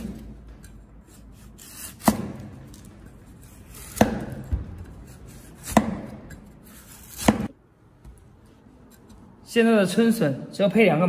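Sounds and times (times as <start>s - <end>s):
cleaver chopping on wooden board: 2.0s - 2.6s, 3.8s - 4.9s, 5.6s - 6.3s, 7.1s - 7.5s.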